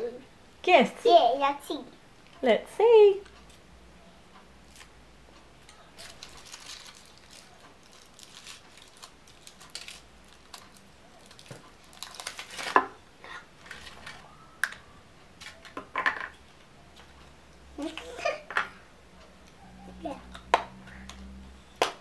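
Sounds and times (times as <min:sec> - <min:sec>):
foil wrapper crinkling: 0:06.0 - 0:13.0.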